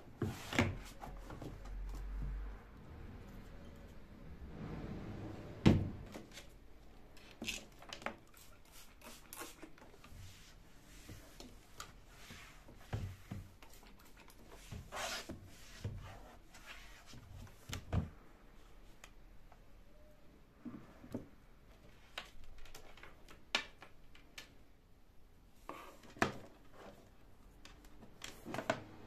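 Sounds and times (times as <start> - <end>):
wooden drawer shutting: 5.6 - 6.3.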